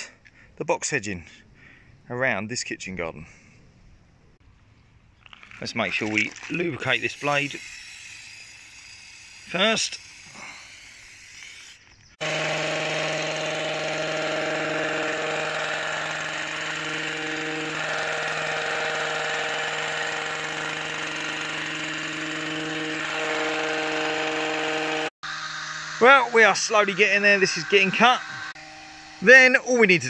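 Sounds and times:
hedge trimmer motor running: 0:07.0 - 0:29.3.

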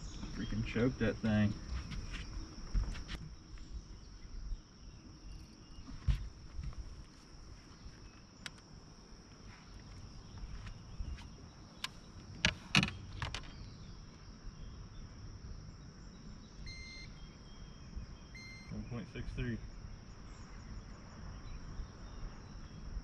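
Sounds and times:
insect drone: 0:00.0 - 0:23.0
sharp clicks and knocks: 0:11.8 - 0:13.5
short electronic beeps: 0:16.6 - 0:17.2, 0:18.3 - 0:18.8.

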